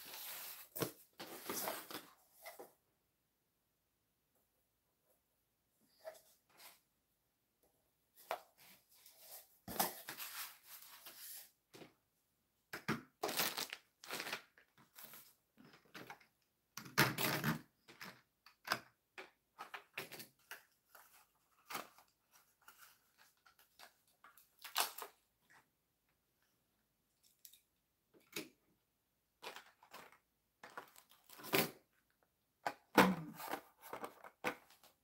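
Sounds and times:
cardboard and paper rustling: 0.0s - 2.7s, 19.6s - 25.1s, 29.4s - 31.8s, 33.0s - 35.0s.

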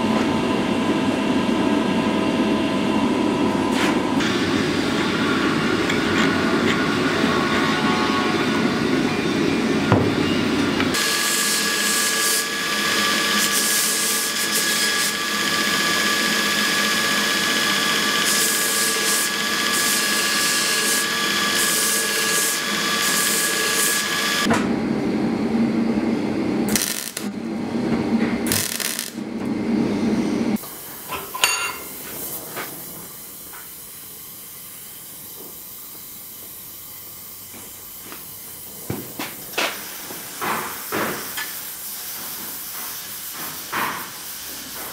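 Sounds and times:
belt grinder grinding steel: 11.0s - 24.5s, 26.7s - 27.3s, 28.5s - 29.2s
welding crackle: 26.7s - 27.4s, 28.5s - 29.2s.

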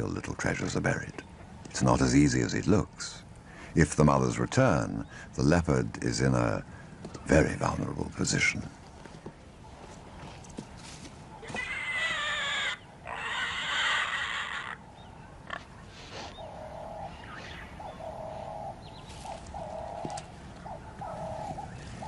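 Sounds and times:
piglets squealing shrilly: 11.4s - 14.8s.

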